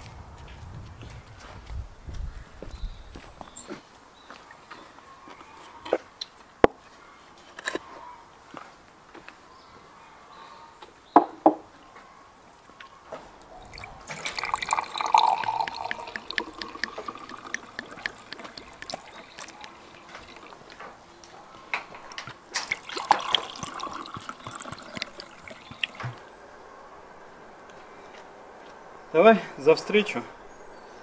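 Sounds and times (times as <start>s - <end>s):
wine pouring into glasses: 13.6s - 20.8s, 22.6s - 26.3s.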